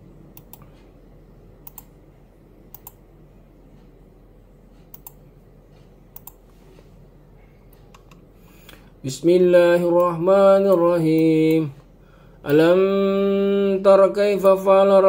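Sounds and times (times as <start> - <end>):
steady low hum: 0.0 - 15.0
sharp double clicks: 1.6 - 2.0, 2.7 - 3.0.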